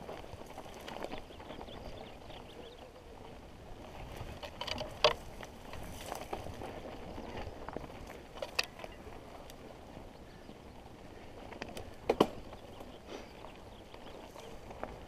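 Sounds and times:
bike tyres on dirt: 0.0s - 15.0s
bike rattling clicks: 4.1s - 9.6s.

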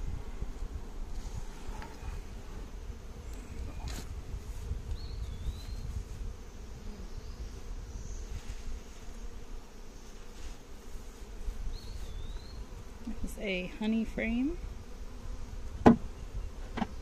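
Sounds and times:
honey bees buzzing: 0.0s - 17.0s.

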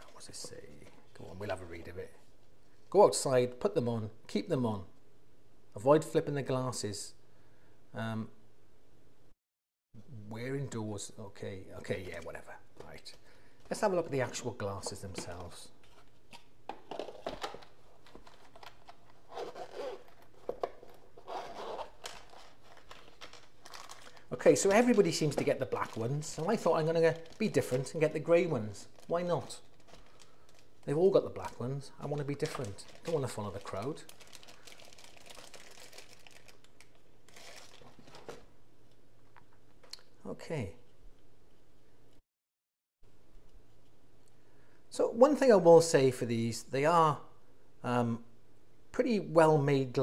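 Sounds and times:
plastic bag crinkling: 16.8s - 38.5s
zip being pulled: 19.3s - 20.2s, 21.2s - 22.0s.

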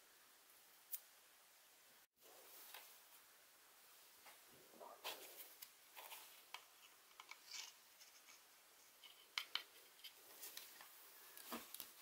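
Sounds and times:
plastic parts clicking and rubbing: 6.0s - 12.0s.

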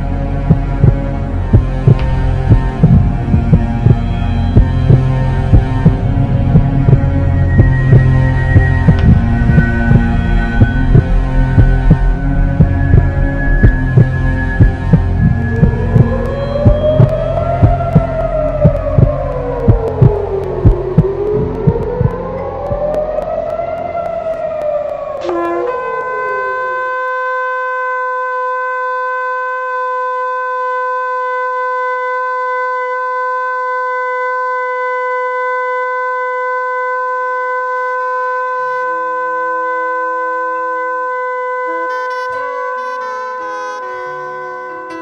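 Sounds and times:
soft low musical notes: 0.0s - 28.3s, 41.2s - 45.0s
air-raid siren wailing: 0.0s - 45.0s
long shofar blast: 25.2s - 45.0s.

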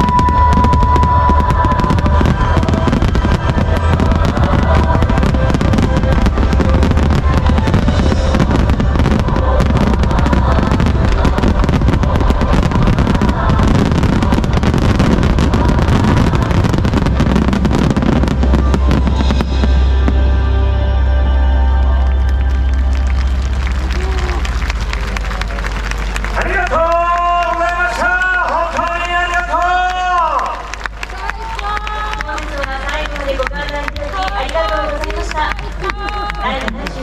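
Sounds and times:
fireworks booming and crackling: 0.0s - 20.3s
music playing: 0.0s - 37.0s.

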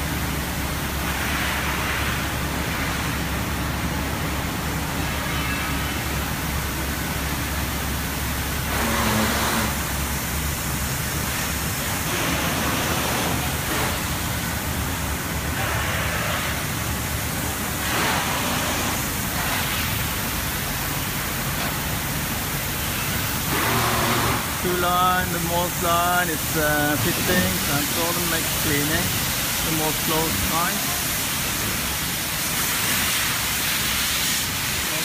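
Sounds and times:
ventilation fans rushing: 0.0s - 35.0s
hiss: 8.6s - 14.7s, 15.6s - 35.0s.

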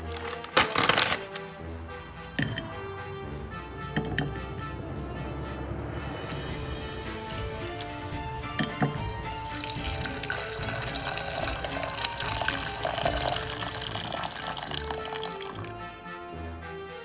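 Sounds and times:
background music: 0.0s - 17.0s
water pouring into saucepan: 9.3s - 15.8s.

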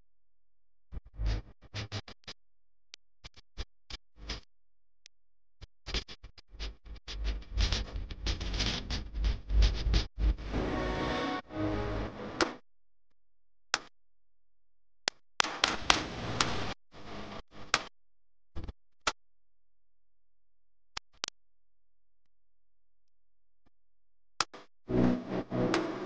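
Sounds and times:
background music: 10.4s - 12.6s, 24.9s - 26.0s.

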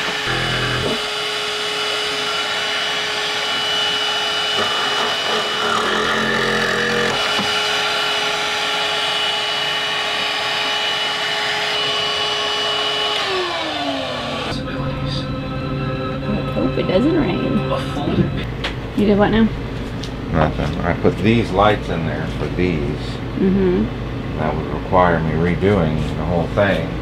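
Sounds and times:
cordless vacuum running: 0.0s - 14.6s
motor spinning down: 0.0s - 14.6s.

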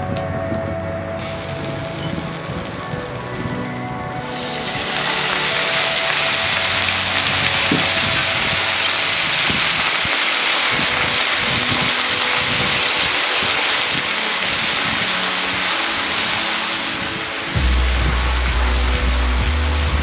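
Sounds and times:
paste sizzling in hot oil: 4.2s - 17.5s.

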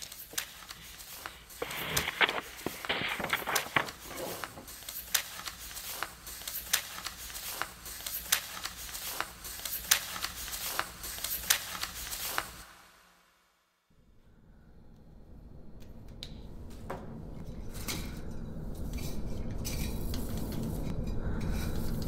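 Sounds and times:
sharp clicks and crackles: 0.0s - 8.8s
steady hiss: 0.0s - 13.4s.

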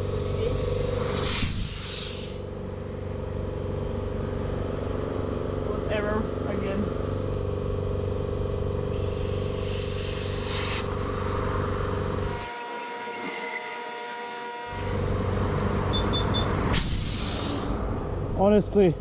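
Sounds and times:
motor hum: 0.0s - 19.0s
air hissing at tyre valve: 0.4s - 2.5s, 8.9s - 11.0s, 16.7s - 17.8s
machine beeps: 15.9s - 16.6s.

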